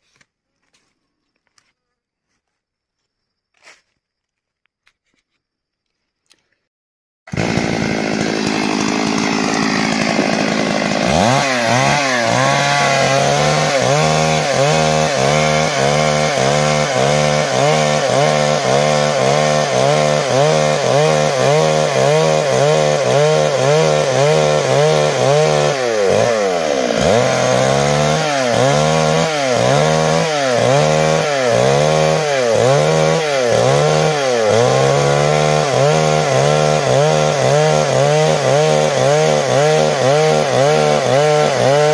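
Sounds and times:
chainsaw cutting through log: 7.3s - 41.9s.

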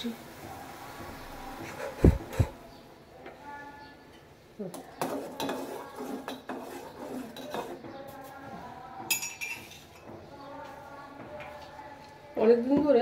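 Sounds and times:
metal clinking and scraping on a pot: 4.7s - 7.9s, 9.1s - 10.1s.

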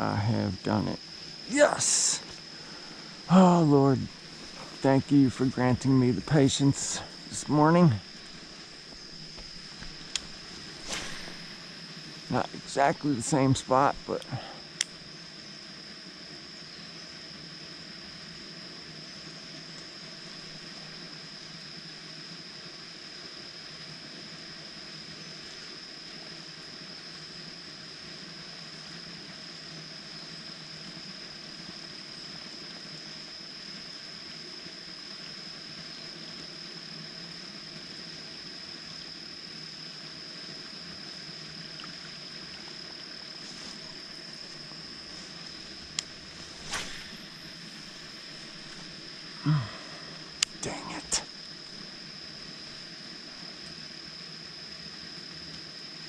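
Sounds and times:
high-pitched insect drone: 0.0s - 56.0s
faint even hiss: 0.6s - 14.9s, 43.2s - 51.8s.

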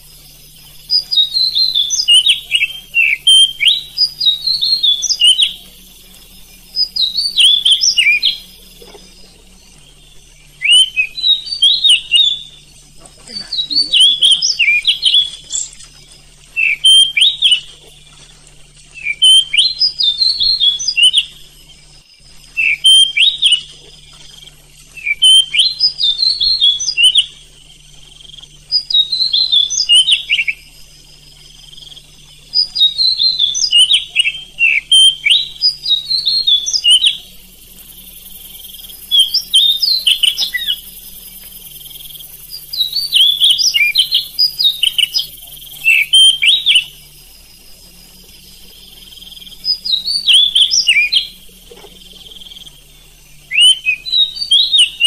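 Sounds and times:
bird singing whistled phrases: 0.4s - 17.8s, 18.9s - 21.4s, 22.5s - 23.9s, 24.9s - 27.4s, 28.6s - 30.7s, 32.1s - 41.0s, 42.5s - 47.1s, 49.5s - 52.8s, 53.4s - 55.0s.

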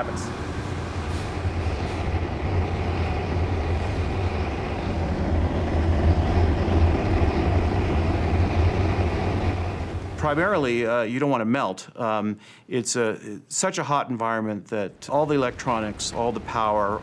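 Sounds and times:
deep low rumble: 0.0s - 10.8s
furnace flame rushing: 0.0s - 11.0s, 15.1s - 17.0s.

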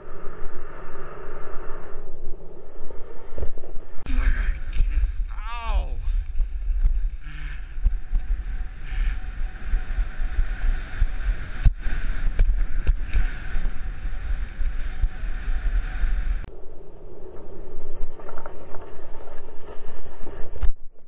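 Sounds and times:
wind buffeting microphone: 4.1s - 16.5s
skis sliding on snow: 6.1s - 16.4s.

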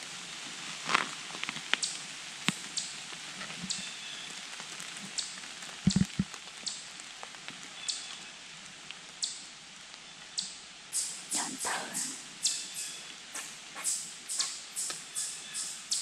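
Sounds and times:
light patters on leaves: 0.0s - 10.6s
faint steady hiss: 0.0s - 16.0s.

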